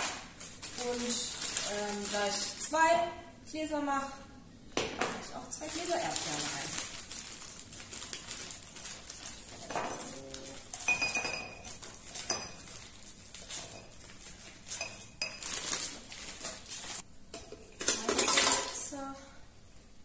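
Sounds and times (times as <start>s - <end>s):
frozen fruit clinking into glass: 9.3s - 16.8s.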